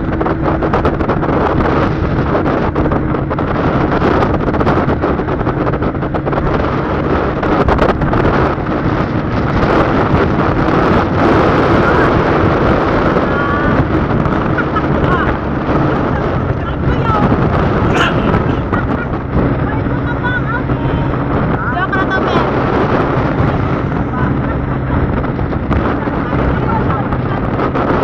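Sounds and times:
vehicle engine and tyres droning: 0:00.0 - 0:28.0
wind buffeting microphone: 0:00.0 - 0:28.0.

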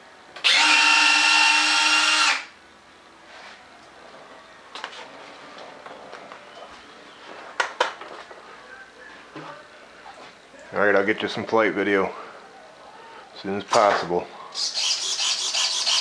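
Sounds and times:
small electric motor whirring: 0:00.4 - 0:02.5, 0:14.6 - 0:16.0.

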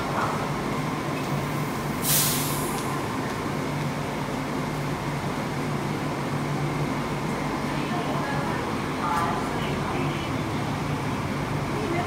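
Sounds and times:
hiss of released air: 0:02.0 - 0:02.8.

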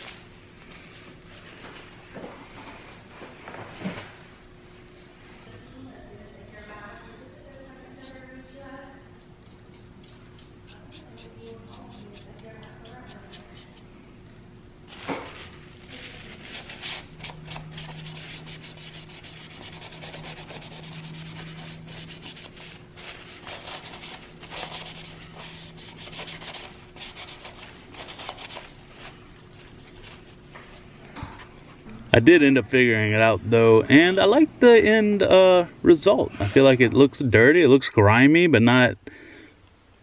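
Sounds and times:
paper towel wiping plastic: 0:14.9 - 0:30.4.

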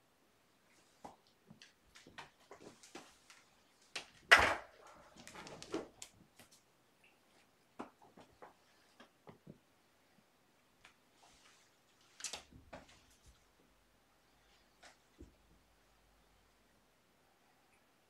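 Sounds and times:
kittens scuffling: 0:00.7 - 0:06.7.

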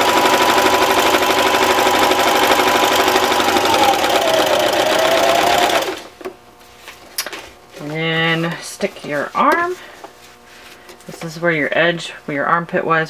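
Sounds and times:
electric sewing machine running: 0:00.0 - 0:06.1.

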